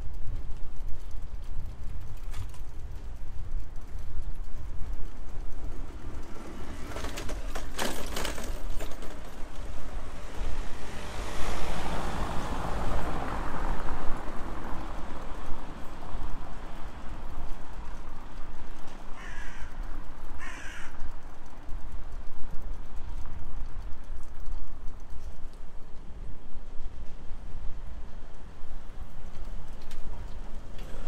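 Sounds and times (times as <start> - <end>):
bicycle rumbling over bricks: 0.0 - 10.7, 13.4 - 31.0
crow cawing: 19.1 - 21.1.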